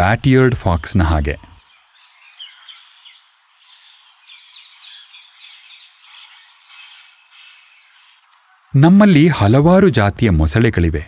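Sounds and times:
faint steady hiss: 0.0s - 11.0s
high chirps of small animals: 1.6s - 8.3s.

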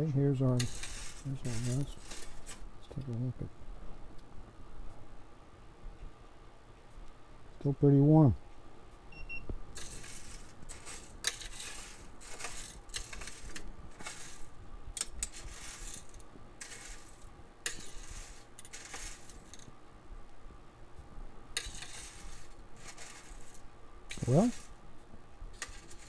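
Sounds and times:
coffee beans rattling on metal: 0.4s - 2.6s, 9.7s - 19.7s, 21.6s - 24.8s, 25.5s - 26.0s.

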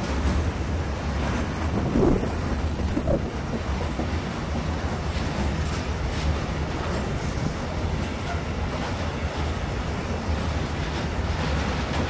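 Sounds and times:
high-pitched squeal: 0.0s - 4.7s
freight train rumbling past: 0.0s - 12.0s.

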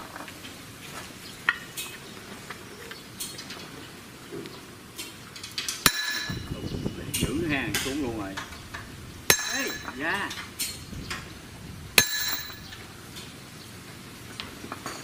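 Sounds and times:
hammer striking steel: 5.8s - 6.5s, 9.3s - 10.9s, 12.0s - 12.8s.

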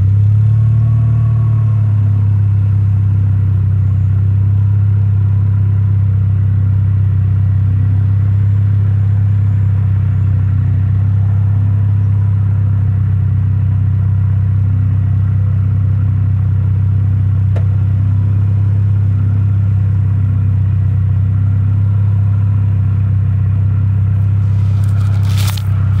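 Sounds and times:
car engine idling deep hum: 0.0s - 26.0s
handling rustle: 24.2s - 26.0s.

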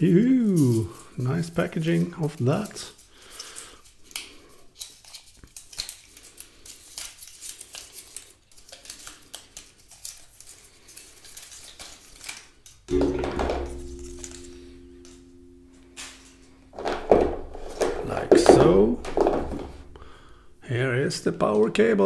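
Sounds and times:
paper packaging rustling: 4.8s - 12.8s
loud music chord: 12.9s - 17.0s.

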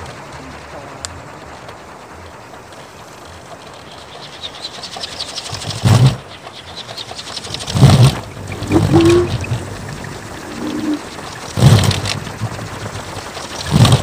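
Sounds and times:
wooden propeller blades beating: 0.0s - 14.0s
short hum: 7.5s - 12.8s
loud low rumbling roar: 7.7s - 14.0s.

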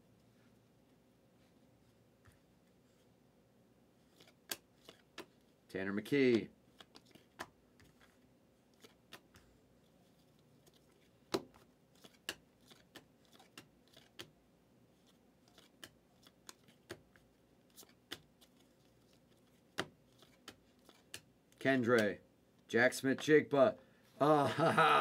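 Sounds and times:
cards sliding off a stack: 4.1s - 5.4s.

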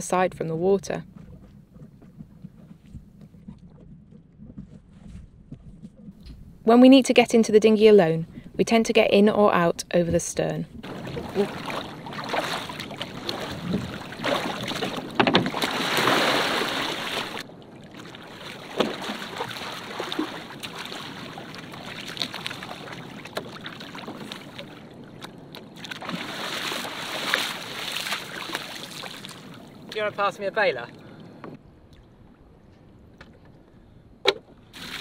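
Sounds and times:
water splashing and sloshing: 10.0s - 35.0s
rush of water: 10.8s - 31.2s, 34.8s - 35.0s.

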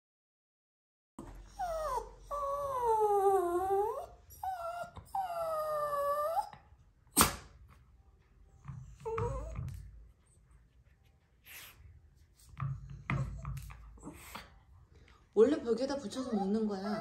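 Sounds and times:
dog whining: 1.2s - 6.8s, 8.8s - 10.0s, 16.0s - 17.0s.

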